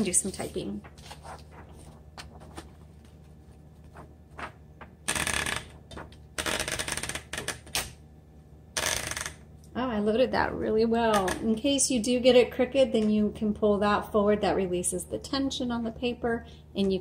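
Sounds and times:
paper rustling in typewriter: 0:00.0 - 0:07.7.

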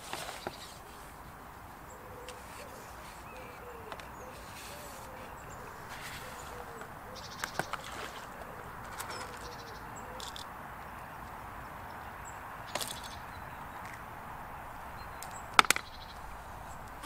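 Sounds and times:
small birds chirping: 0:00.0 - 0:17.0
fishing tackle clicks: 0:10.2 - 0:10.5.

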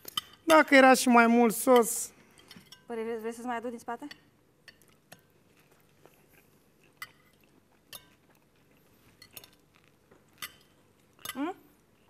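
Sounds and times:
cutlery clicking against plate: 0:00.0 - 0:00.5, 0:07.0 - 0:08.2, 0:09.2 - 0:11.5.

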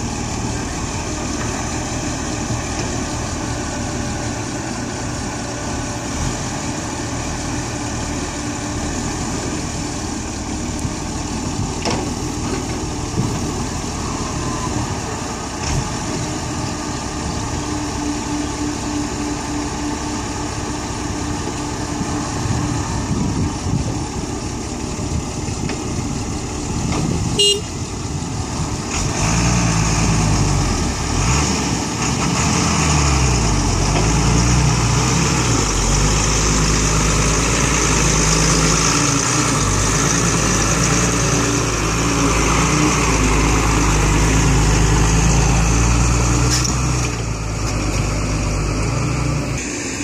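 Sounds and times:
diesel truck engine revving: 0:00.0 - 0:50.0
truck horn toot: 0:27.3 - 0:27.8.

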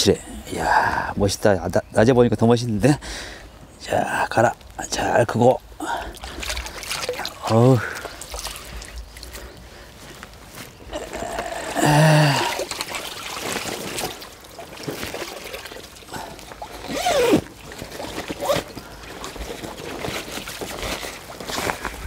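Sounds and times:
water sloshing and trickling: 0:04.8 - 0:22.0
person exclaiming: 0:10.9 - 0:12.6.

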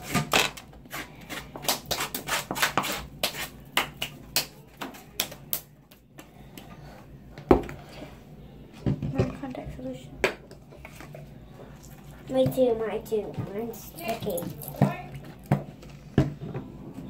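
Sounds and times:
stick stirring slime: 0:00.0 - 0:05.6.

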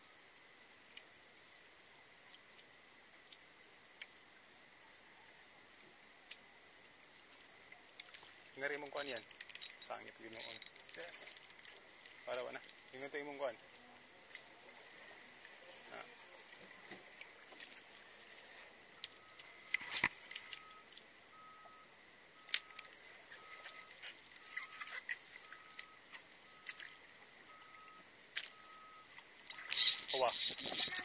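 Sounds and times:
fishing reel clicks and knocks: 0:09.0 - 0:12.2, 0:29.5 - 0:31.0.

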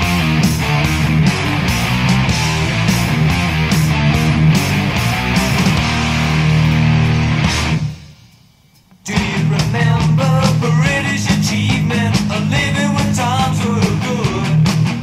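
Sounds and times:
electric guitars: 0:00.0 - 0:08.2, 0:09.1 - 0:15.0
drums: 0:00.0 - 0:15.0
lead vocal singing: 0:09.0 - 0:14.8.

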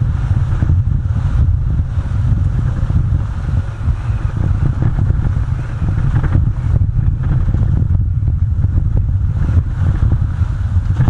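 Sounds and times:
vehicle driving on gravel: 0:00.0 - 0:11.0.

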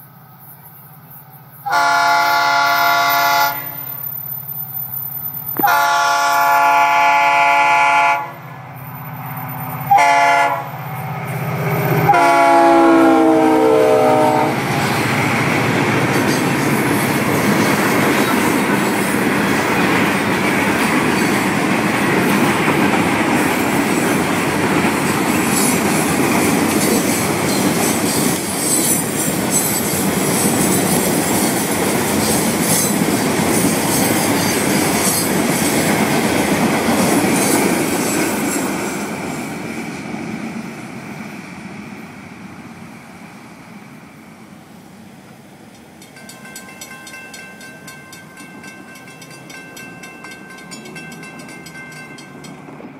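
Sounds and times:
train cars rumbling on rails: 0:00.0 - 0:52.9
locomotive air horn: 0:01.6 - 0:03.8, 0:05.6 - 0:08.4, 0:09.9 - 0:10.8, 0:12.1 - 0:14.6.

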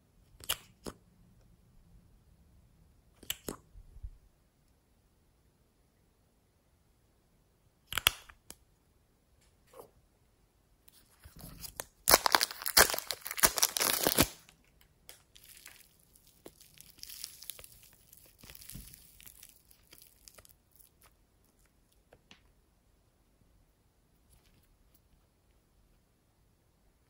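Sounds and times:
foam clay crackling as torn: 0:11.3 - 0:14.5, 0:15.1 - 0:21.1.

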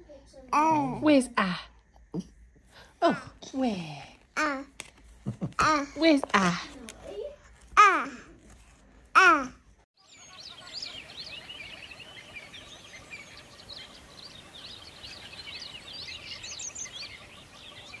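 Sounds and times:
small birds chirping: 0:00.0 - 0:09.4, 0:10.0 - 0:18.0.

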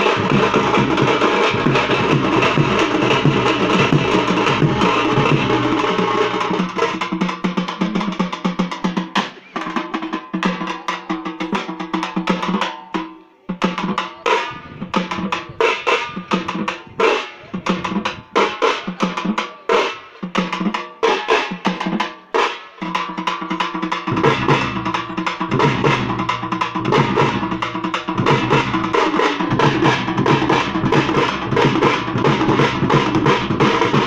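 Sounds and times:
fast barrel drumming: 0:00.0 - 0:12.7, 0:22.8 - 0:34.0.

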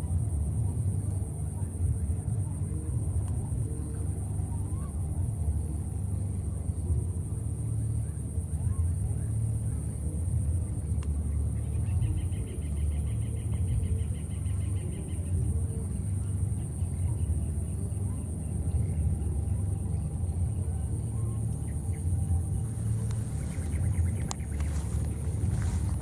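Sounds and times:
high pulsing buzz: 0:00.0 - 0:26.0
low rumble on microphone: 0:00.0 - 0:26.0.

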